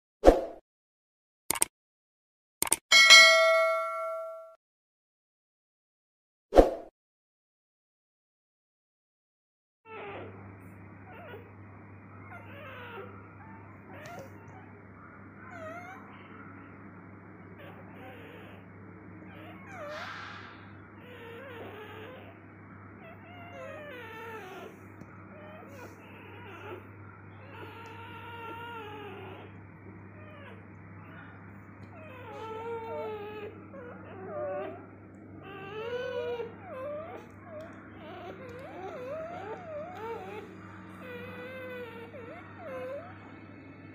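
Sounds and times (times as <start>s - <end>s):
puppy whimpering: 3.2s - 4.4s, 9.9s - 10.4s, 11.0s - 11.5s, 12.2s - 14.8s, 15.4s - 16.3s, 17.6s - 22.4s, 23.0s - 43.9s
steady low hum: 10.3s - 43.9s.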